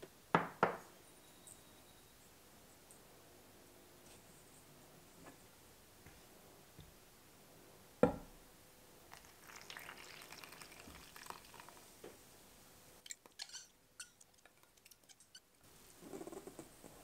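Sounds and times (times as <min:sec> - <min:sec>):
liquid pouring into flour: 0:09.1 - 0:12.0
spatula scraping a cup: 0:13.1 - 0:15.5.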